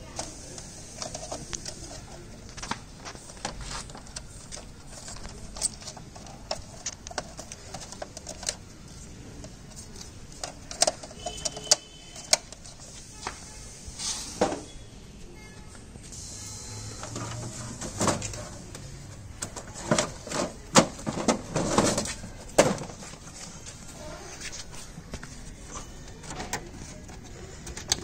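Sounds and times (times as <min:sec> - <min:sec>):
plastic and metal parts clicking: 0:00.0 - 0:13.0, 0:17.0 - 0:28.0.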